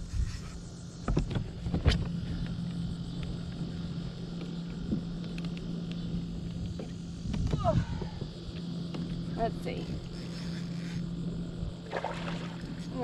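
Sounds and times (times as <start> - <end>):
steady low hum: 0.0 - 13.0
wind: 0.0 - 13.0
water noise: 11.7 - 13.0.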